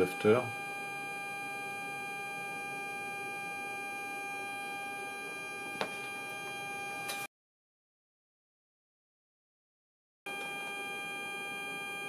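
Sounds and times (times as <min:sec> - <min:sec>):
steady electrical whine: 0:00.0 - 0:07.3, 0:10.3 - 0:12.0.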